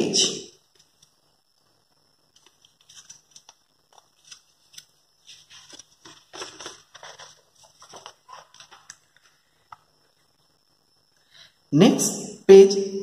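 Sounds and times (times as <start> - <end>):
page turning: 2.3 - 9.9
paper rustling and crinkling: 2.3 - 9.9
small paper crackles: 2.3 - 9.9.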